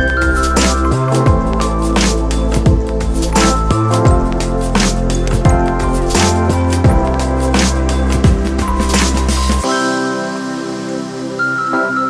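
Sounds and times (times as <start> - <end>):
electronic music with beat: 0.0 - 12.0.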